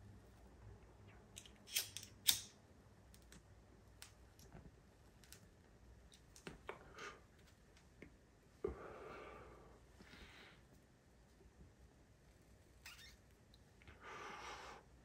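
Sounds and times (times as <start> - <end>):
lighter clicks and crackles: 1.4 - 3.4.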